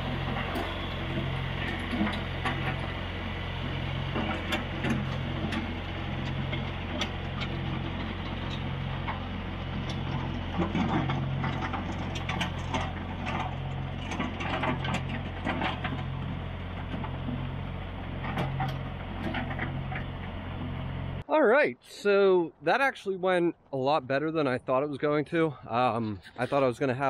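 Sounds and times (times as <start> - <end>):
tractor engine running under load: 0.0 - 21.2
gravel crunching: 0.0 - 21.3.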